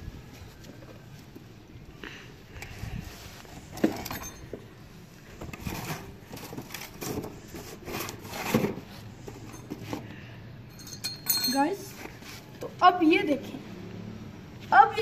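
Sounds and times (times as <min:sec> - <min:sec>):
objects moved on concrete floor: 0:02.6 - 0:12.7
rubbing and scraping handling noises: 0:02.6 - 0:12.8.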